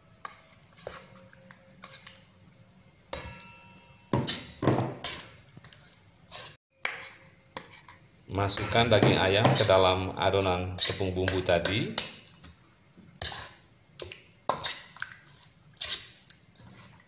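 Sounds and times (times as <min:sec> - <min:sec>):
wet batter slapping and squelching: 0:13.2 - 0:17.0.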